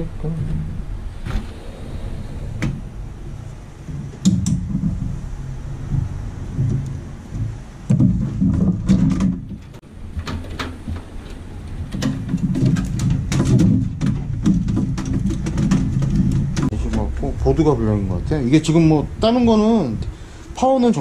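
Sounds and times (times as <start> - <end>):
low pitched drone: 0.0 - 7.9, 16.0 - 20.6.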